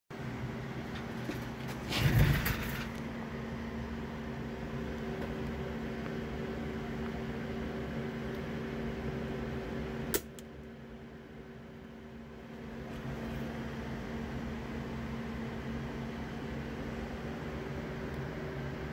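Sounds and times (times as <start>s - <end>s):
electrical hum and buzz: 0.2s - 18.9s.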